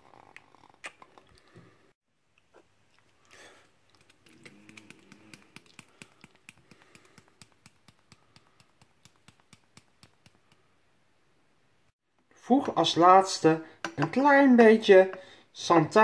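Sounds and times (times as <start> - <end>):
spice container shaken and tapped: 4.0 - 10.7.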